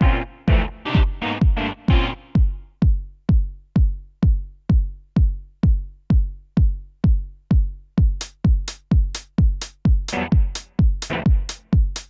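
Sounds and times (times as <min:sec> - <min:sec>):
synth chord: 0:00.0 - 0:02.4
electronic kick drum: 0:00.0 - 0:12.0.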